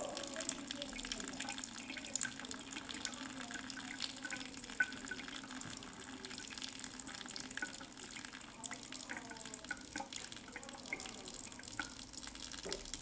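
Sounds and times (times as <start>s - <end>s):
water drips: 0.0s - 13.0s
water jet splashing on stone: 0.0s - 13.0s
tap running into sink: 12.6s - 13.0s.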